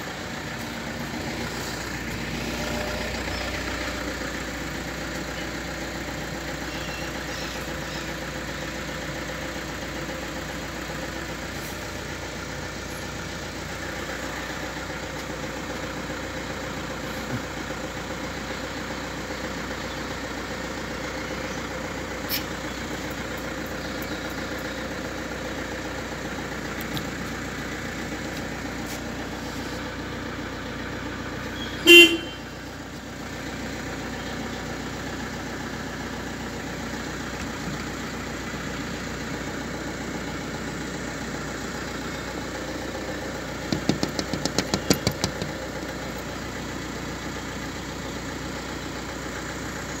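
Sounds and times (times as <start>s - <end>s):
car engine idling: 0.0s - 50.0s
car horn toot: 31.5s - 32.7s.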